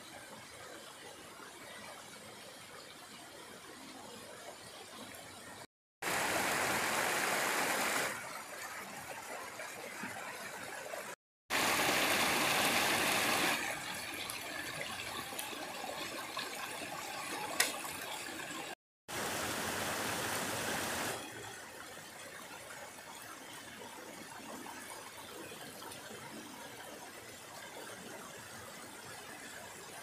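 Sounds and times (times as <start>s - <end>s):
stream rushing over stones: 6.0s - 9.6s, 11.0s - 16.0s, 16.8s - 21.2s.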